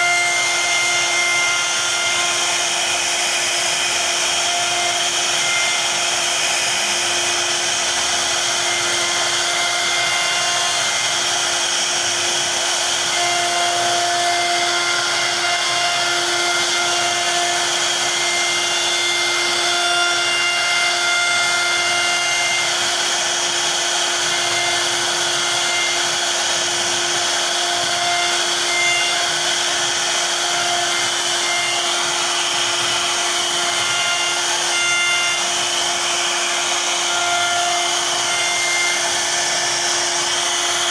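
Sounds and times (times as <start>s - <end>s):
router spindle whining: 0.0s - 40.9s.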